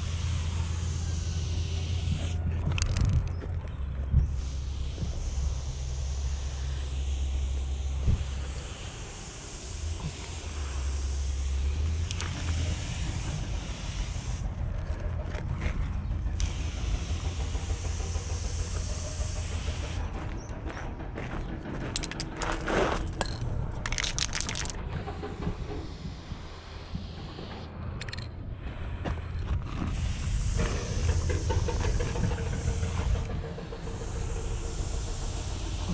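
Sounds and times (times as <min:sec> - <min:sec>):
spray paint hissing: 0:00.0 - 0:03.0, 0:04.2 - 0:15.0, 0:16.1 - 0:20.2, 0:23.8 - 0:28.2, 0:29.8 - 0:35.9
sharp clicks and rattles: 0:00.0 - 0:28.4, 0:29.3 - 0:35.9
wind rumble on microphone: 0:02.2 - 0:05.5, 0:24.7 - 0:34.6.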